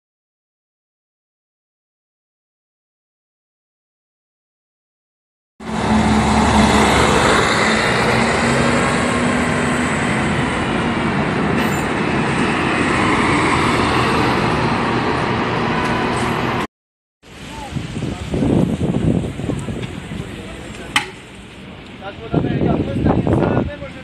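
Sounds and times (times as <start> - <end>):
tram wheels rumbling on rails: 5.6 - 16.7.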